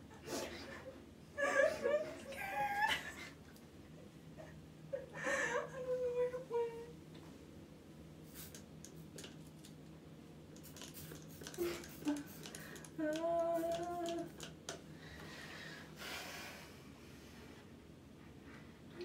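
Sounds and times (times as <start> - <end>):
woman whimpering: 1.4 - 3.2, 5.0 - 6.3.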